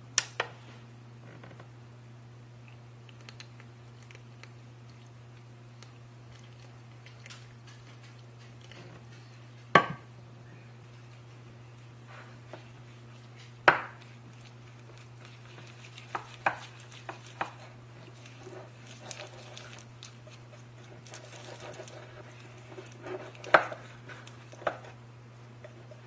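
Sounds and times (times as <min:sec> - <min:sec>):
low steady hum: 0:00.0 - 0:26.0
spatula scraping a bowl: 0:12.0 - 0:25.0.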